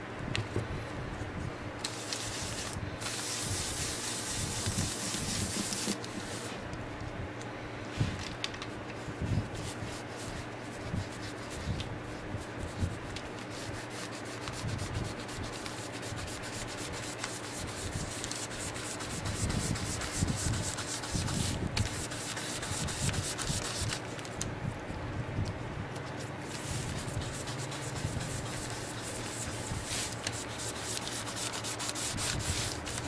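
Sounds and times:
cloth rubbing on leather: 1.9 - 6.6, 26.5 - 33.0.

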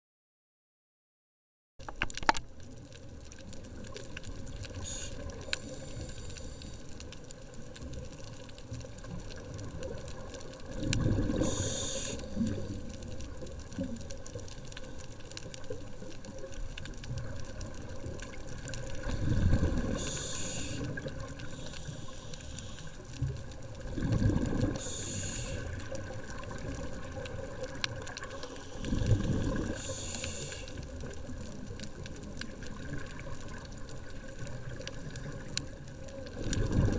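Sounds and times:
steady underwater hiss: 3.1 - 36.9
regulator air hiss: 4.8 - 6.9, 11.4 - 12.5, 19.8 - 23.0, 24.8 - 25.8, 28.3 - 29.0, 29.7 - 30.8
diver exhaling bubbles: 10.7 - 12.9, 18.9 - 21.3, 23.9 - 25.8, 28.2 - 30.4, 36.4 - 36.9.

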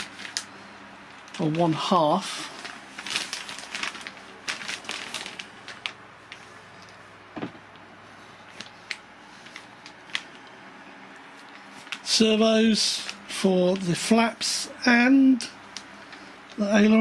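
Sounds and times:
plastic bag crinkling: 0.0 - 7.8, 8.4 - 10.4, 11.4 - 12.2.

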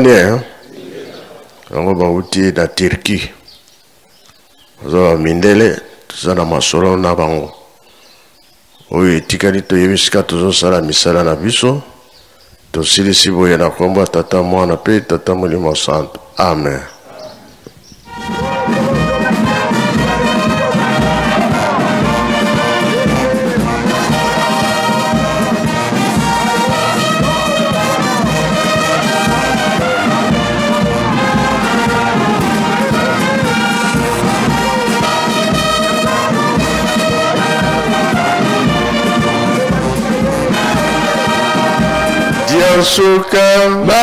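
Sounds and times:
brass band playing a march: 18.1 - 43.2.

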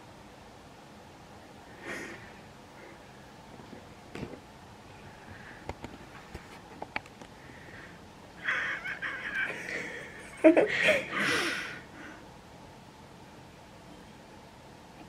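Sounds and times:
person giggling: 8.4 - 11.8
stifled laughter through nose: 8.4 - 11.8.

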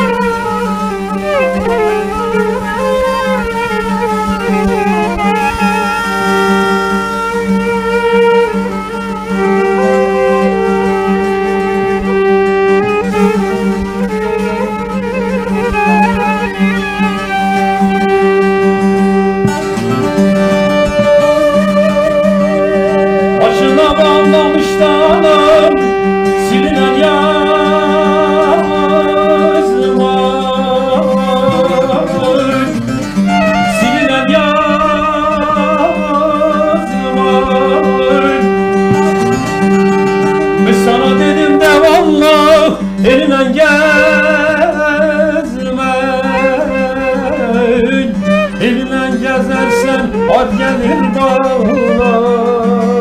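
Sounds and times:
long-necked lute: 0.0 - 53.0
violin: 0.0 - 53.0
man singing: 20.0 - 53.0.

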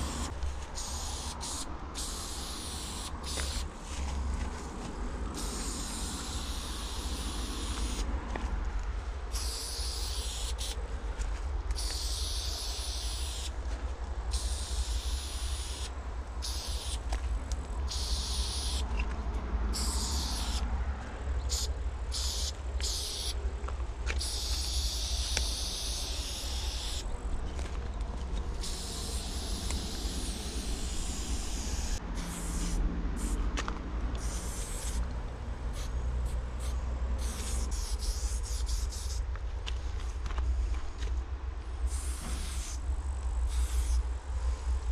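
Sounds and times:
spray paint can hissing: 0.0 - 4.0, 5.3 - 8.1, 9.3 - 10.8, 11.7 - 13.6, 14.3 - 19.0, 19.7 - 20.7, 21.4 - 23.4, 24.1 - 27.1, 28.5 - 33.5, 34.1 - 35.1, 35.7 - 39.3, 41.9 - 42.8, 43.4 - 44.0
steady low rumble: 0.0 - 44.9.

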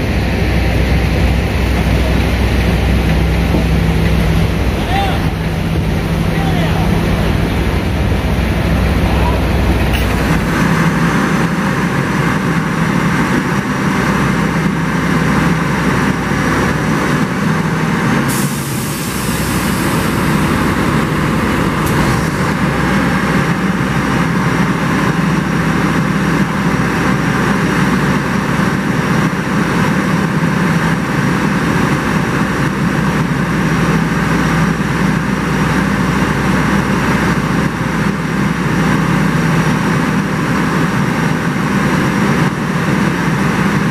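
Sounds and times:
heavy diesel engine humming: 0.0 - 43.9
hiss: 18.2 - 22.6.

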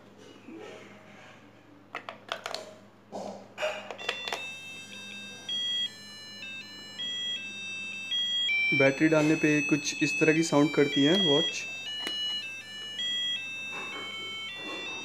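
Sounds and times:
batteries clicking into compartment: 1.9 - 2.6, 3.9 - 4.5, 11.9 - 12.4
alarm clock electronic beeping tune: 4.0 - 15.0.

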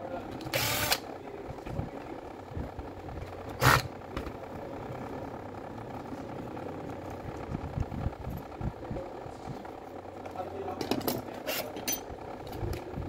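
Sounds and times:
steady low hum: 0.0 - 13.0
screwdriver scraping: 11.3 - 12.0.

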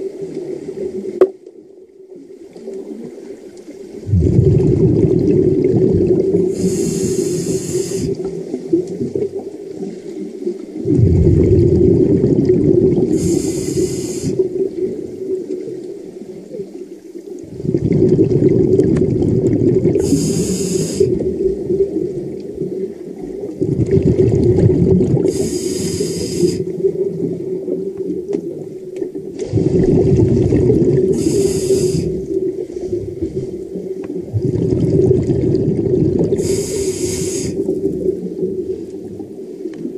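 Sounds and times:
exhaled bubbles rushing: 2.4 - 16.7, 17.3 - 39.9
scuba regulator hissing: 6.5 - 8.2, 13.2 - 14.4, 20.0 - 21.2, 25.3 - 26.6, 31.1 - 32.2, 36.4 - 37.6.

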